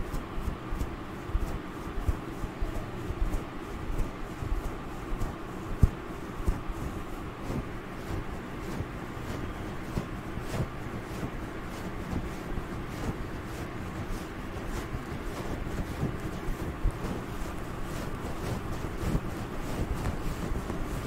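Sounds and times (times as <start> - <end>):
fingernails scratching fur: 0.0 - 21.0.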